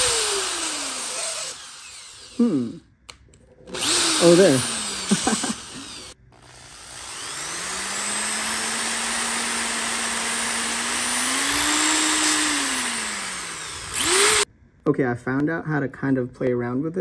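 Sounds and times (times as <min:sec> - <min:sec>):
power drill whining: 0:00.0 - 0:02.4, 0:03.6 - 0:14.5.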